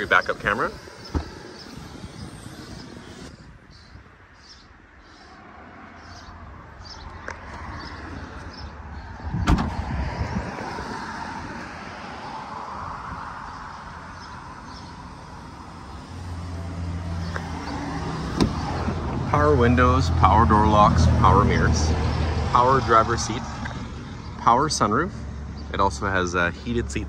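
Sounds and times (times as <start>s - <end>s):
car liftgate slamming shut: 9.4s - 9.8s.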